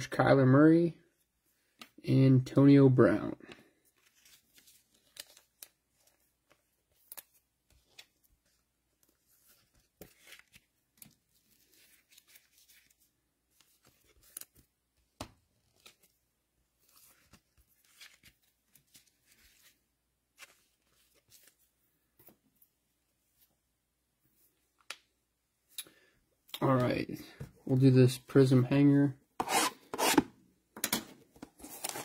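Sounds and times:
cards rustling and clicking: 0:03.4 - 0:22.6, 0:29.4 - 0:32.0.

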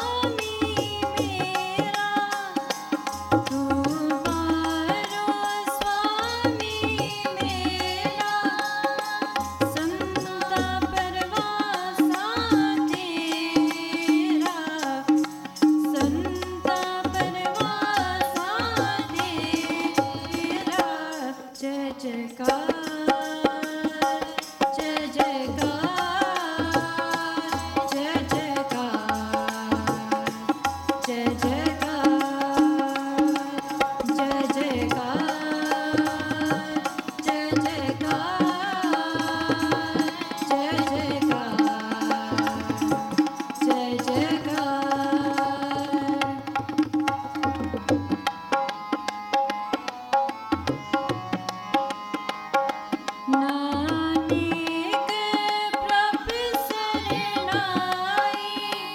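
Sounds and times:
lead singer singing: 0:00.0 - 0:47.9, 0:53.3 - 0:58.9
harmonium chords: 0:00.0 - 0:58.9
tabla rhythm: 0:00.0 - 0:58.9.

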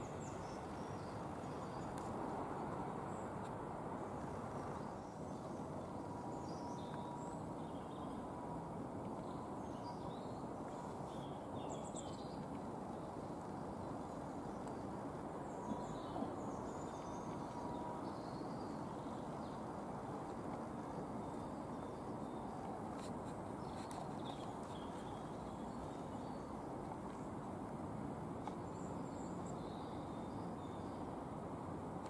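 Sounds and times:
low background noise: 0:00.0 - 0:32.0
small birds chirping: 0:20.7 - 0:27.4.

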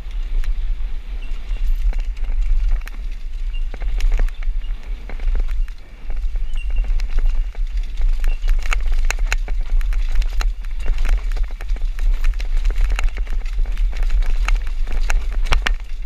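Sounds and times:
mountain bike rattling: 0:00.0 - 0:16.0
wind on microphone: 0:00.0 - 0:16.0.

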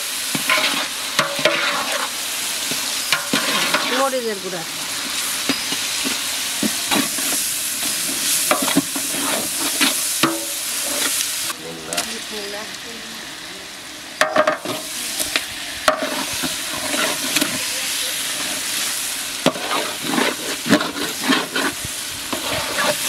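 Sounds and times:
food sizzling in hot oil: 0:00.0 - 0:23.0
metal spatula scraping a pot: 0:00.4 - 0:02.1, 0:03.0 - 0:04.0, 0:08.5 - 0:11.2, 0:15.9 - 0:17.6, 0:19.4 - 0:23.0.

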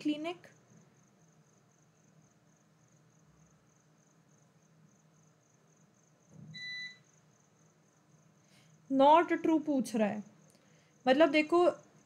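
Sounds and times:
faint high-pitched chirp: 0:06.5 - 0:07.1.

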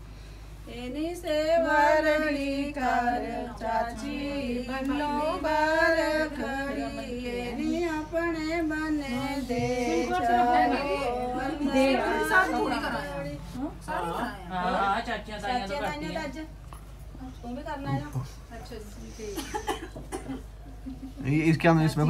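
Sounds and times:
women singing unaccompanied: 0:00.7 - 0:13.5.

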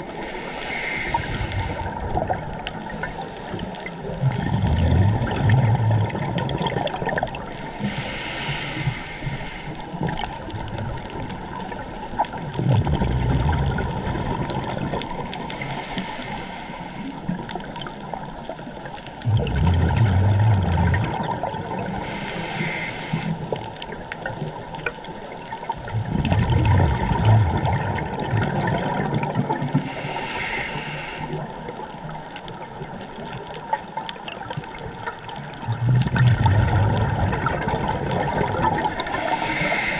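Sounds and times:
scuba regulator hissing inhale: 0:00.0 - 0:02.1, 0:02.8 - 0:04.0, 0:07.5 - 0:10.0, 0:15.2 - 0:17.4, 0:21.7 - 0:23.6, 0:29.6 - 0:31.7, 0:39.0 - 0:39.9
bubbling exhaled air underwater: 0:00.0 - 0:39.9.

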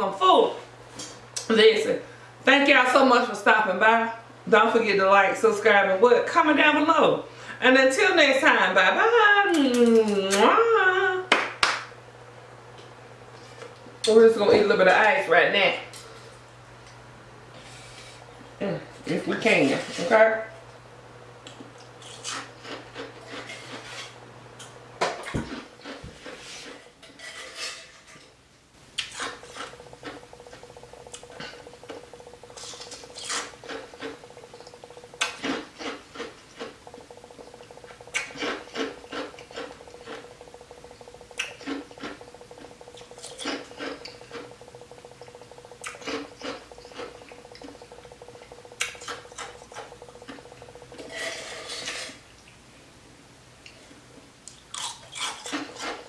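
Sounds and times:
ice crunched and chewed: 0:29.0 - 0:52.1, 0:54.5 - 0:56.0.

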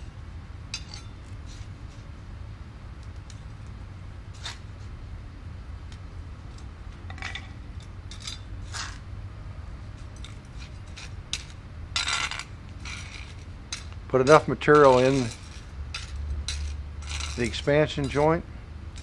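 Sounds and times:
trowel scraping on concrete: 0:08.2 - 0:09.0, 0:10.2 - 0:18.4
loose granular mix rattling: 0:10.6 - 0:18.3.

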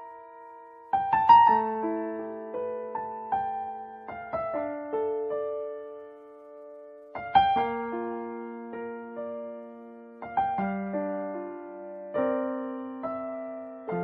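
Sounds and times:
slow solo piano music: 0:00.0 - 0:14.0.

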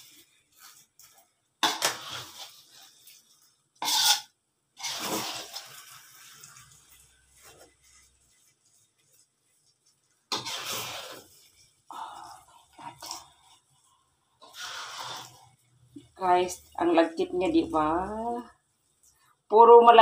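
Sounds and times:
metal spatula scraping a wok: 0:00.0 - 0:17.2.

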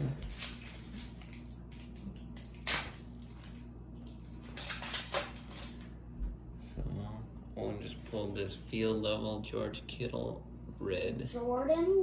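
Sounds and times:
foil wrapper crinkling: 0:00.0 - 0:05.8.

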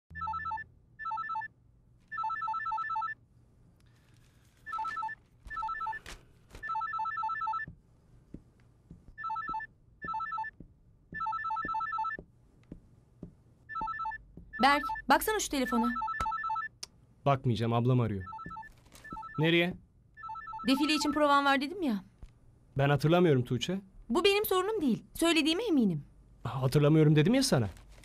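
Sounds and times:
electronic trilling ringtone: 0:00.1 - 0:01.5, 0:13.7 - 0:15.0, 0:20.2 - 0:21.2.

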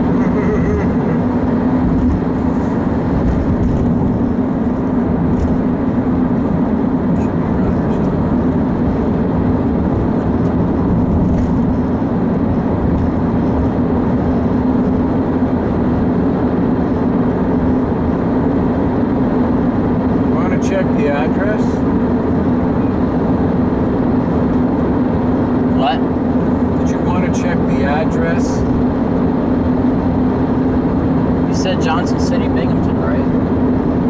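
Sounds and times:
car road noise from inside: 0:00.0 - 0:34.0.

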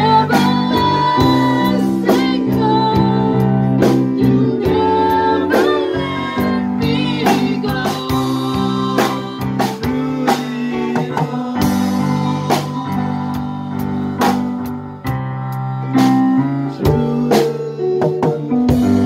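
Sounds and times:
live band playing: 0:00.0 - 0:19.0.

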